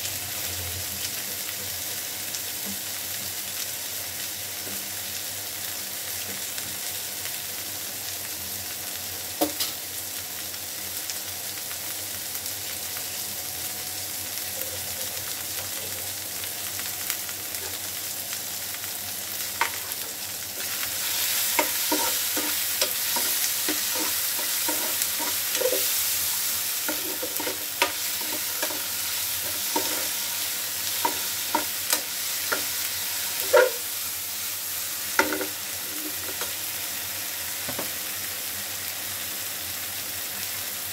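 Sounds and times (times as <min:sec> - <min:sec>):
vegetables sizzling in oil: 0:00.0 - 0:40.9
steel spoon scraping a pan: 0:20.6 - 0:34.0, 0:35.1 - 0:36.6.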